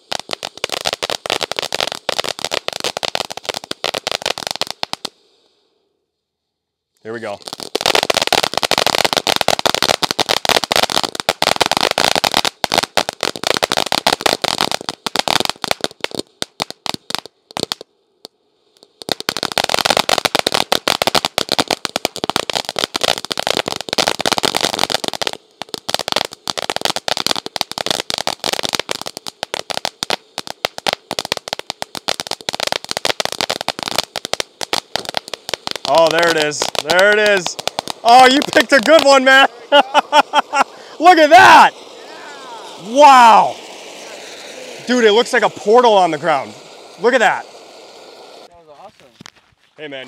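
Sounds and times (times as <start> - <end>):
firework fountain crackling: 0.0 - 5.4, 7.0 - 50.0.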